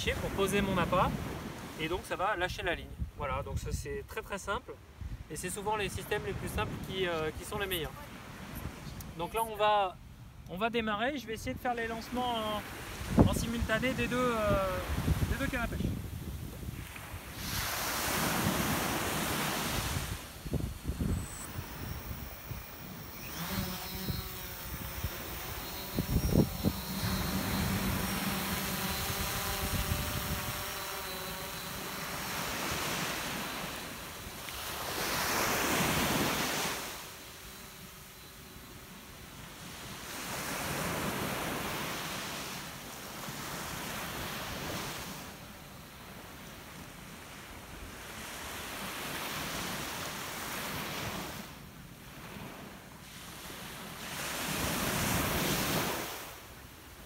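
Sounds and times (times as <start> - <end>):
sea waves washing onto shore: 11.9 - 38.0
wind on microphone: 12.7 - 37.7
drone propellers humming: 18.6 - 39.1.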